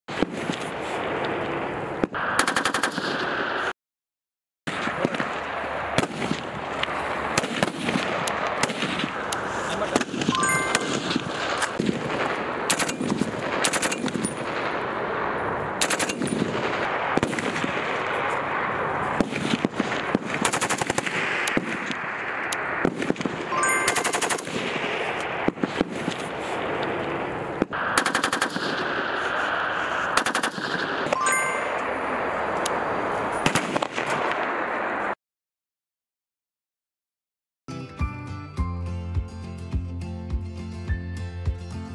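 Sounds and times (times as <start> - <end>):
gunfire shots and bursts: 0.1 - 3.7, 4.7 - 15.2, 15.8 - 31.8, 33.3 - 35.2
constant background noise: 4.7 - 35.2.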